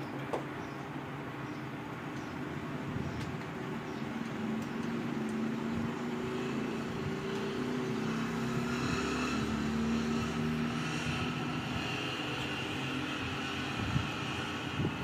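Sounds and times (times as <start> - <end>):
engine humming: 0.0 - 15.0.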